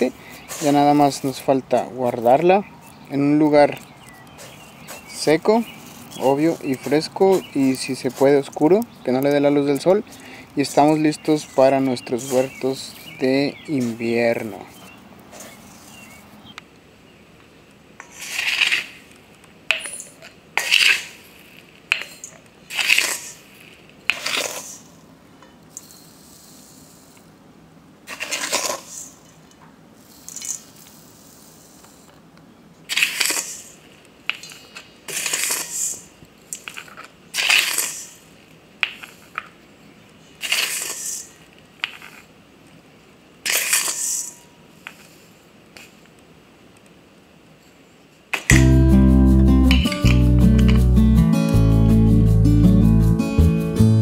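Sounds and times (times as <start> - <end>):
seeds rattling against metal and glass: 0.0 - 14.7, 15.4 - 16.1, 18.0 - 25.0, 25.7 - 27.2, 28.1 - 32.1, 32.9 - 39.5, 40.4 - 42.3, 43.4 - 45.2.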